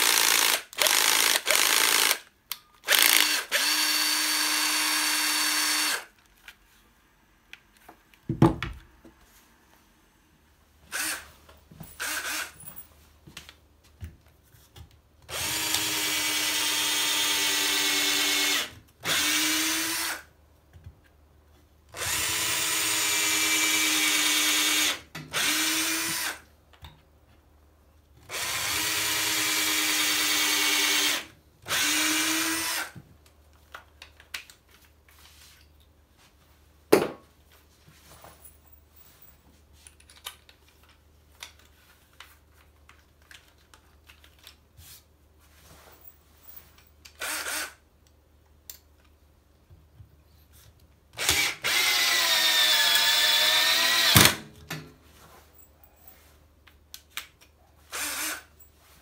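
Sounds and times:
drill boring into wood: 0.0s - 2.2s, 2.9s - 6.1s, 12.0s - 12.6s, 15.3s - 20.3s, 22.0s - 26.4s, 28.3s - 33.0s, 47.2s - 47.8s, 51.2s - 54.4s, 57.9s - 58.5s
cordless drill whining: 0.0s - 6.1s, 10.9s - 11.2s, 12.0s - 12.6s, 15.3s - 20.3s, 22.0s - 26.4s, 28.3s - 33.0s, 47.2s - 47.8s, 51.2s - 54.4s, 57.9s - 58.6s.

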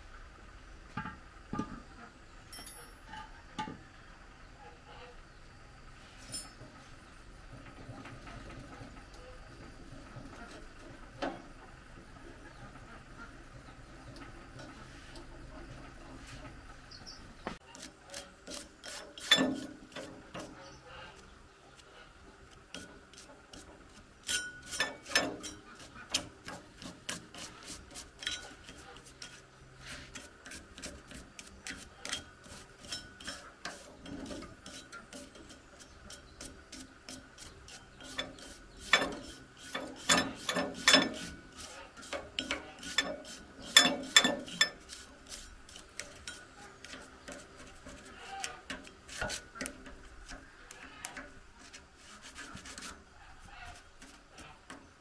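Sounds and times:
screwdriver scraping metal drum: 14.0s - 21.9s, 22.5s - 55.0s.

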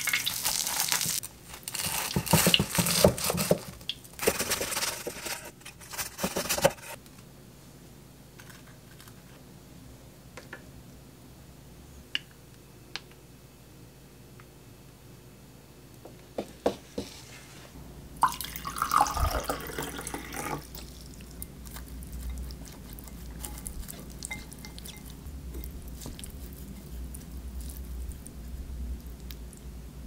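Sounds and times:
chopsticks mixing wet noodles: 20.6s - 29.6s.

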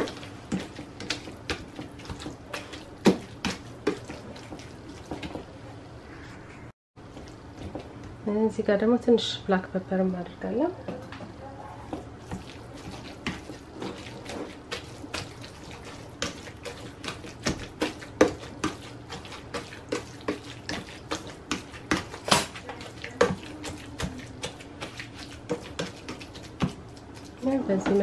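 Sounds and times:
mash squishing: 0.0s - 5.5s, 11.9s - 28.0s.

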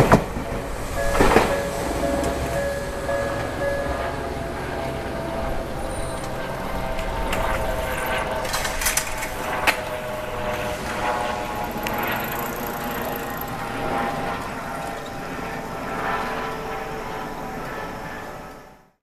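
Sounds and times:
electric train humming: 0.0s - 18.9s.

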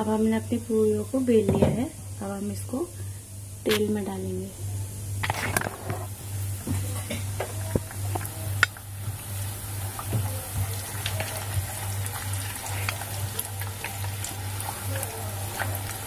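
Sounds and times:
low pulsing hum: 0.0s - 10.8s
oil bubbling and crackling: 5.1s - 16.0s.

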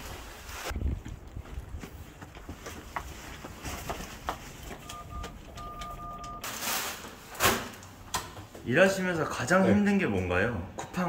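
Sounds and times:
footsteps: 0.0s - 7.2s
electronic beep: 4.8s - 6.4s.

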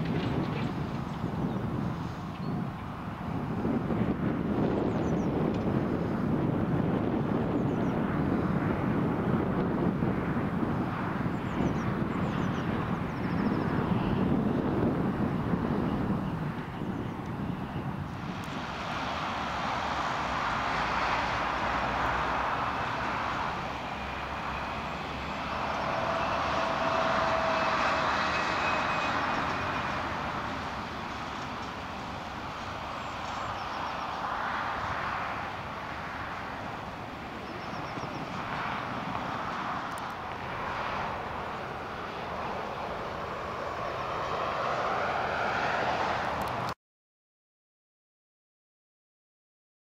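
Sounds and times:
distant engine drone: 0.0s - 46.8s.

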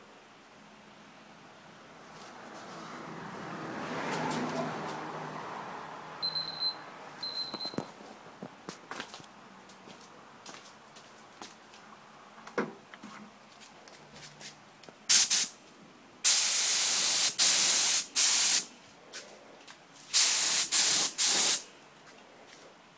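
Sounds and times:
spray paint hissing: 15.1s - 15.6s, 16.2s - 18.7s, 20.1s - 21.6s.

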